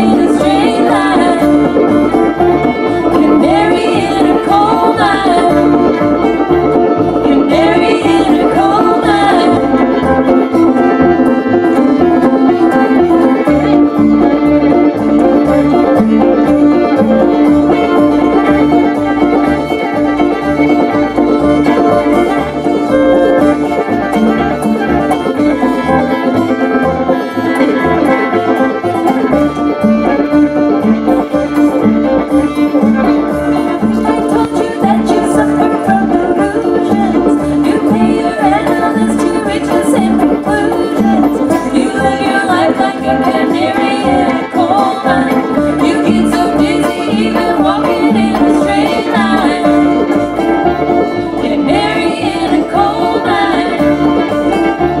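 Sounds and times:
women singing: 0.0s - 10.4s, 17.4s - 23.8s, 33.5s - 54.9s
banjo: 0.0s - 55.0s
guitar: 0.0s - 55.0s
upright bass: 0.0s - 55.0s.

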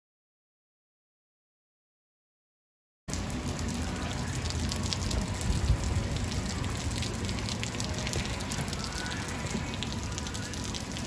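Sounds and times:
heavy rain on asphalt: 3.1s - 11.0s.

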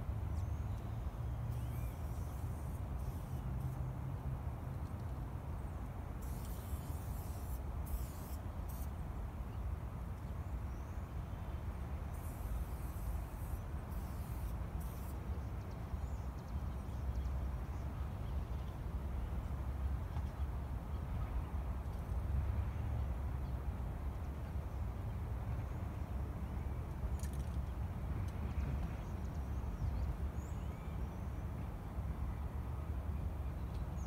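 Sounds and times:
spray paint can hissing: 6.2s - 8.9s, 12.2s - 15.1s.

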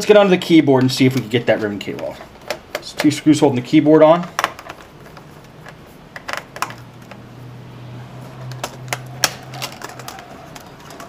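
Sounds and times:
tool clicking on plastic parts: 0.8s - 3.2s.

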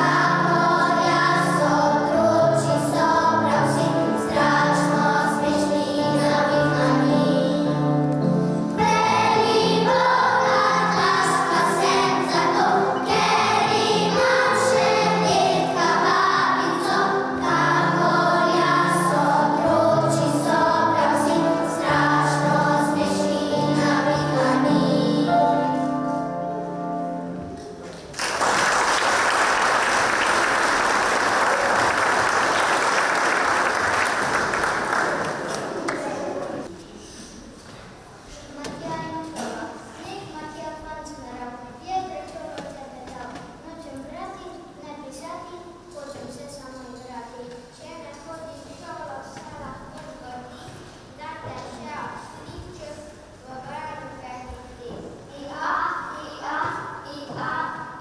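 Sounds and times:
children's choir singing: 0.0s - 37.2s
applause: 28.1s - 36.4s.

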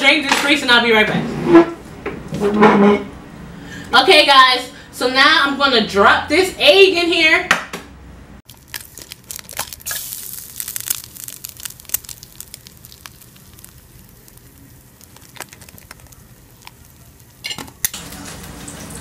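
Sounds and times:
egg sizzling in grease: 8.5s - 19.0s.

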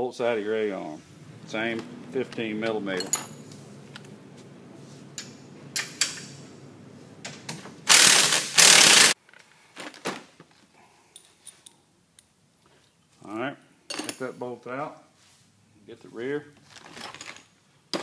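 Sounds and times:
metal tool clicks and clinks: 3.0s - 3.5s
ratchet rattling bursts: 7.9s - 9.2s.

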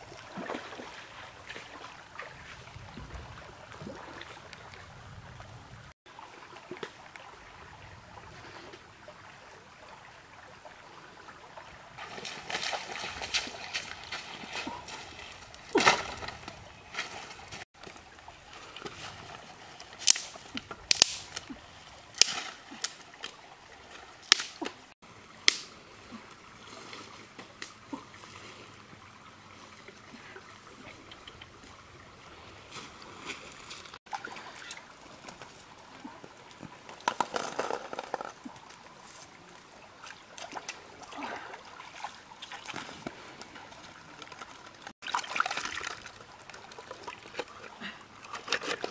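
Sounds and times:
water sloshing and trickling: 0.0s - 48.9s
dry sticks snapping: 20.0s - 21.5s, 22.2s - 23.4s, 24.2s - 24.8s, 25.4s - 25.7s.

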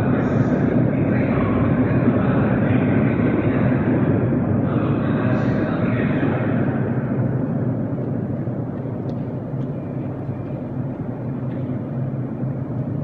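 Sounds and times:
underground station rumble and hum: 0.0s - 13.0s.

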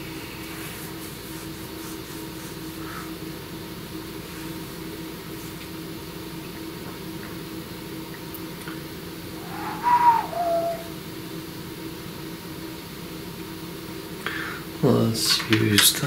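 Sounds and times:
low background hum: 0.0s - 16.0s
falling whistle-like sound: 9.4s - 11.0s.

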